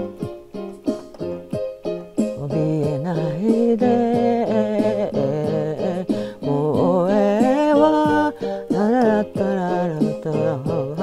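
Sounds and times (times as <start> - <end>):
keyboard chords: 0.0 - 11.0
woman singing: 2.4 - 11.0.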